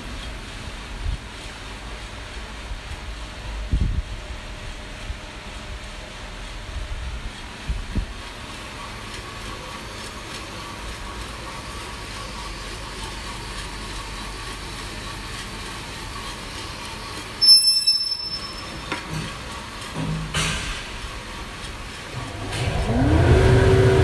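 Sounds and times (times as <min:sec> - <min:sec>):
coffee roaster motor whir: 0:00.0 - 0:24.0
high-pitched squeal: 0:17.4 - 0:19.0.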